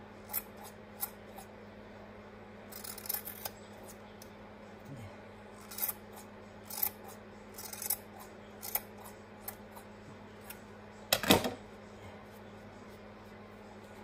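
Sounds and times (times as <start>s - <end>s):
scissors snipping yarn: 5.6s - 8.0s, 8.6s - 10.6s.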